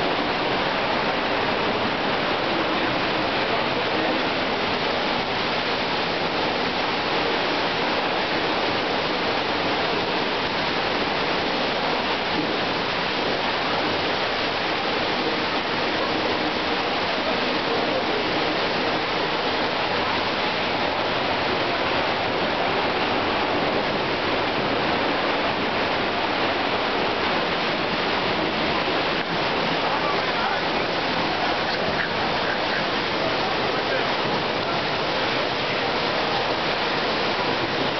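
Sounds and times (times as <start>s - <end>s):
waterfall rushing: 0.0s - 37.9s.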